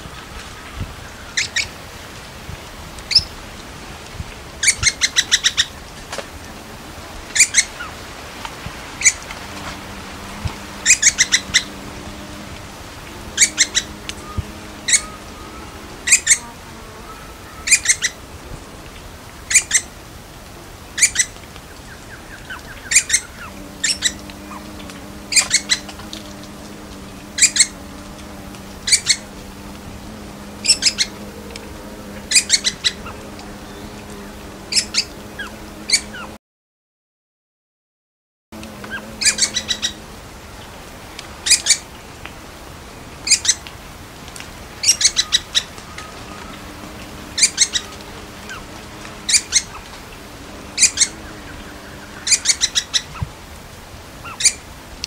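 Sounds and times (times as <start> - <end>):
woodpecker calling: 1.2 - 1.8, 3.1 - 3.4, 4.6 - 5.8, 7.3 - 8.0, 8.8 - 18.2, 19.5 - 19.9, 21.0 - 34.1, 34.7 - 36.2, 38.9 - 40.0, 41.4 - 41.9, 43.2 - 43.6, 44.8 - 53.3, 54.2 - 54.7.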